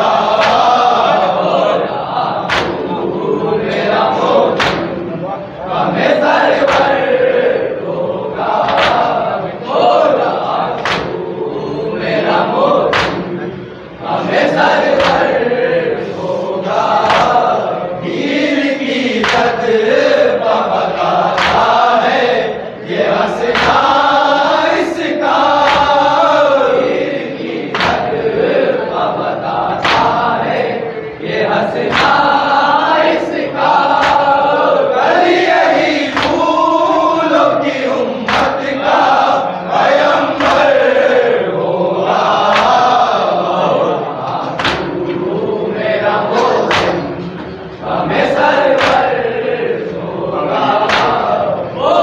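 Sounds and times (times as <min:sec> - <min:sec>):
men chanting in chorus: 0:00.0 - 0:52.0
hands slapping chests: 0:00.4 - 0:00.8, 0:02.5 - 0:02.8, 0:04.5 - 0:05.0, 0:06.6 - 0:07.0, 0:08.6 - 0:09.2, 0:10.8 - 0:11.2, 0:12.9 - 0:13.3, 0:15.0 - 0:15.3, 0:17.0 - 0:17.4, 0:19.2 - 0:19.6, 0:21.3 - 0:21.8, 0:23.4 - 0:24.1, 0:25.6 - 0:26.2, 0:27.7 - 0:28.1, 0:29.8 - 0:30.2, 0:31.9 - 0:32.2, 0:33.9 - 0:34.3, 0:36.1 - 0:36.4, 0:38.2 - 0:38.6, 0:42.5 - 0:42.8, 0:44.4 - 0:45.0, 0:46.4 - 0:47.1, 0:48.8 - 0:49.1, 0:50.8 - 0:51.3.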